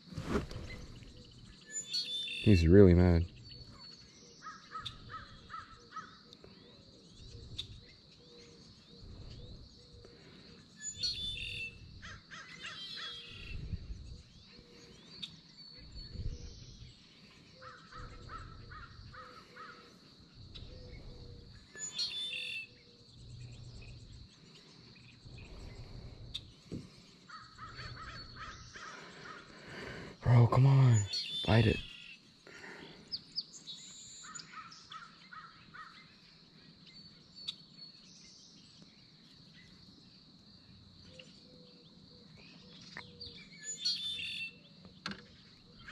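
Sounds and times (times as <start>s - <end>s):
wind rumbling on microphone: 0.0s - 1.6s, 7.1s - 8.0s, 8.8s - 10.0s, 13.3s - 14.7s, 15.8s - 17.0s, 20.4s - 21.8s, 25.0s - 27.0s
birds calling: 0.0s - 40.0s, 40.6s - 45.9s.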